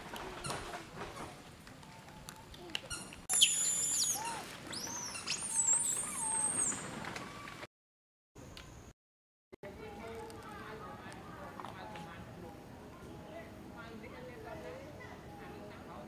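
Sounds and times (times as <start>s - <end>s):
high-pitched animal squeals and chirps: 2.9s - 6.8s
lower arching animal calls: 3.0s - 7.3s.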